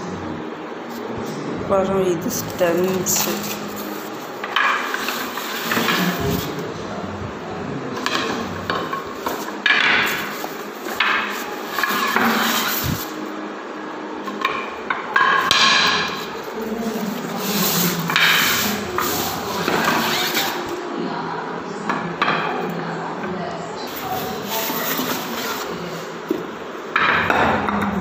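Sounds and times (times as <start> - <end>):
plastic bag rustling: 2.2 - 6.7, 16.2 - 20.8.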